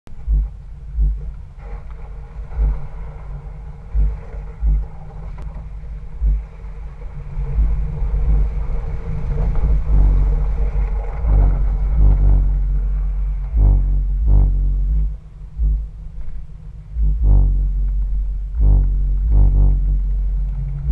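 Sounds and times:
short low thumps: 0:00.1 - 0:03.3, 0:03.9 - 0:06.6, 0:07.4 - 0:20.9
car engine driving: 0:07.4 - 0:20.9.

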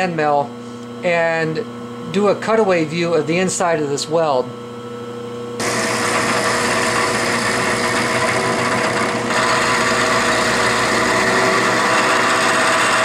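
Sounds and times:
milling machine cutting steel: 0:05.6 - 0:13.0.

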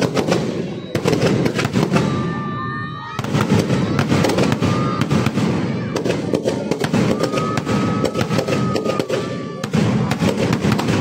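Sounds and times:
firecrackers bursting: 0:00.0 - 0:11.0
thin steady whistle: 0:00.5 - 0:01.2.

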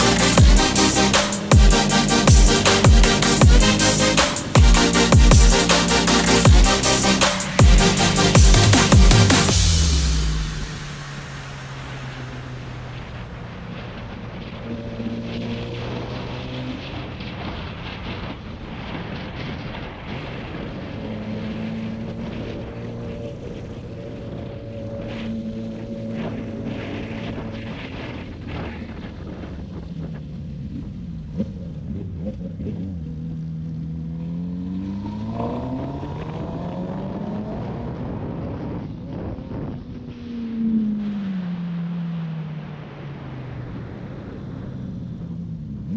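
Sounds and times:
motorcycle engine revving: 0:00.0 - 0:18.2, 0:20.5 - 0:43.1
wind rush: 0:00.0 - 0:31.4, 0:34.7 - 0:45.9.

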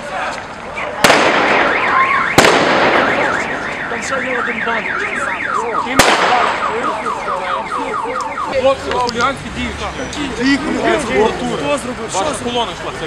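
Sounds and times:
car alarm warbling: 0:00.7 - 0:09.0
firecracker bangs: 0:01.0 - 0:03.9, 0:05.9 - 0:06.8.

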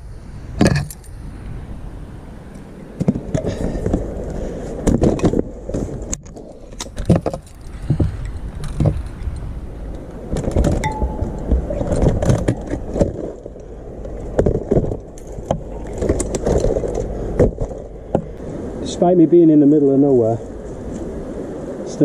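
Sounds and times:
rustling close to microphone: 0:02.4 - 0:18.5.

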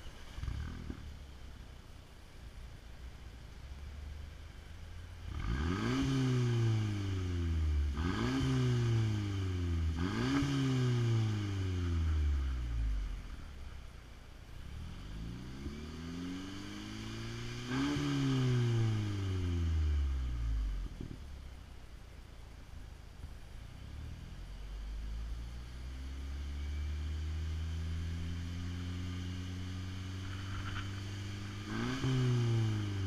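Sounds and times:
car engine revving: 0:00.0 - 0:01.6, 0:03.4 - 0:21.9, 0:22.9 - 0:33.0.

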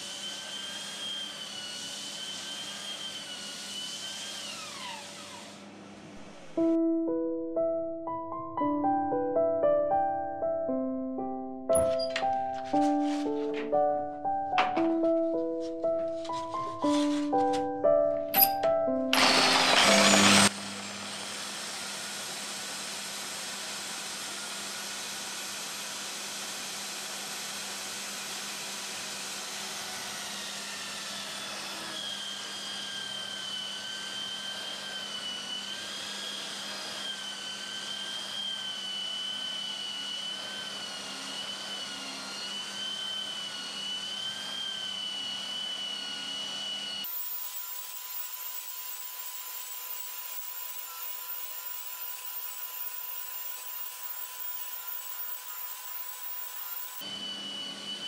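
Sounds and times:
router high whine: 0:00.0 - 0:06.6, 0:19.1 - 0:58.0
vacuum motor hum: 0:19.2 - 0:25.8, 0:26.6 - 0:58.0.

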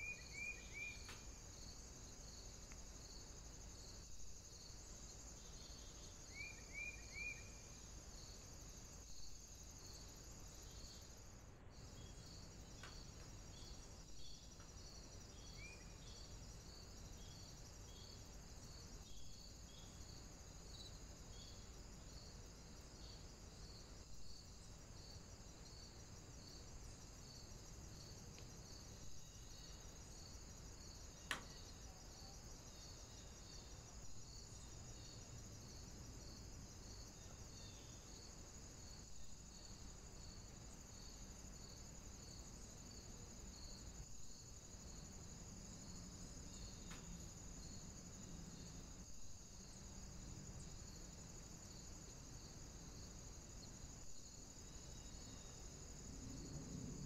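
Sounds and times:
insect chirping: 0:00.0 - 0:57.0
sharp click: 0:31.3 - 0:31.5.

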